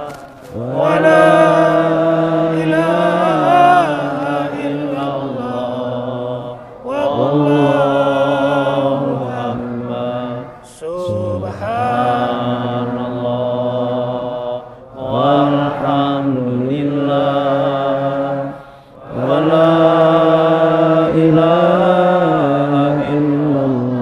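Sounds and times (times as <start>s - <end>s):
men chanting together: 0.0s - 24.0s
breaths: 18.5s - 19.0s.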